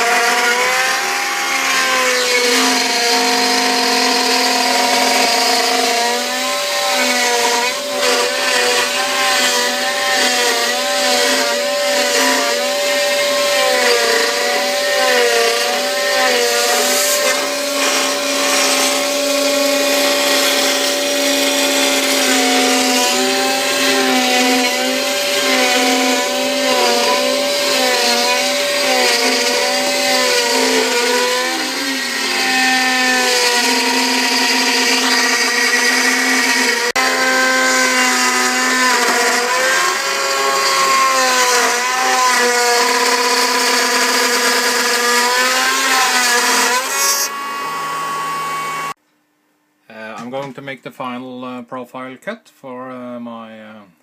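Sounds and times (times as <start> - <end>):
router spindle running: 0.0 - 49.0
stepper motors whining: 12.8 - 48.9.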